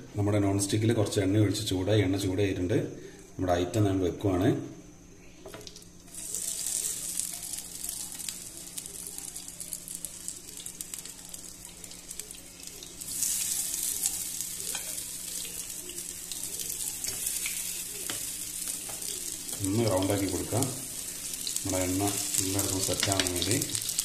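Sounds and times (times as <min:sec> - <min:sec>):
oil sizzling and crackling in pan: 0:05.5 - 0:24.0.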